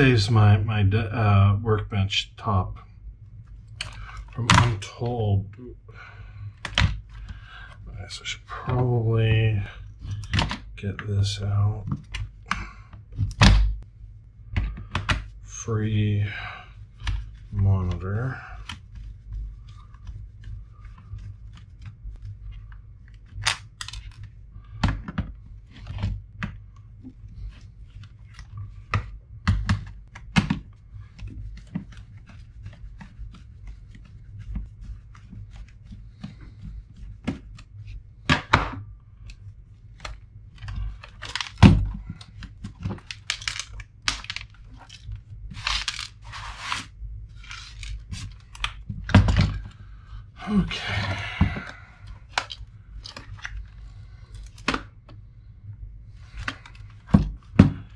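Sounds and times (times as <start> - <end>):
plastic scraping: 39.9 - 49.8.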